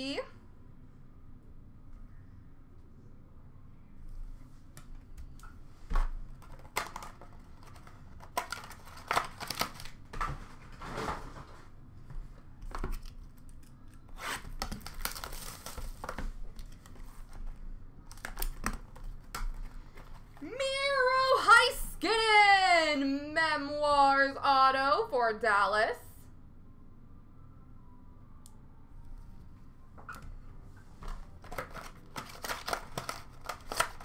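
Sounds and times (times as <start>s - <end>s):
plastic wrapping crinkling and tearing: 6.4s - 10.0s, 12.8s - 17.4s, 31.4s - 34.0s.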